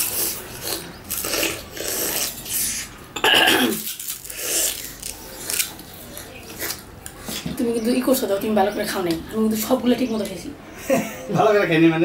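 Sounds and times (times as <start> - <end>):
sugar cane being chewed: 0.0 - 2.9, 3.8 - 7.5.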